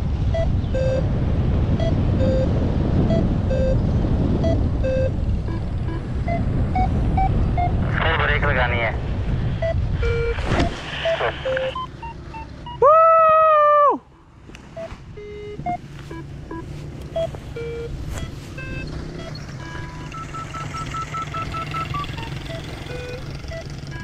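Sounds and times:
electronic beeps: 0:00.3 - 0:01.1, 0:01.7 - 0:08.4, 0:09.6 - 0:12.8, 0:14.8 - 0:24.0
loud held electronic tone: 0:00.3 - 0:08.6, 0:09.6 - 0:12.8, 0:14.8 - 0:24.0.

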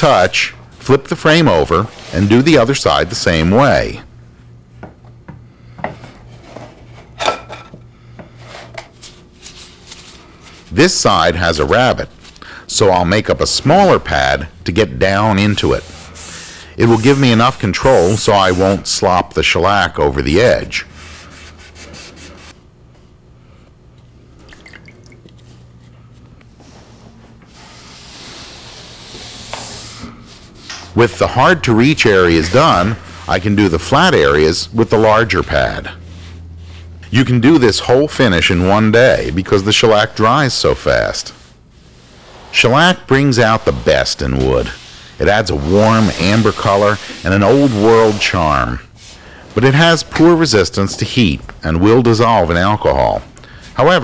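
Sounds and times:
pad rubbing on wood: 0:15.3 - 0:18.9, 0:21.0 - 0:22.6, 0:26.6 - 0:34.1, 0:43.6 - 0:51.1.

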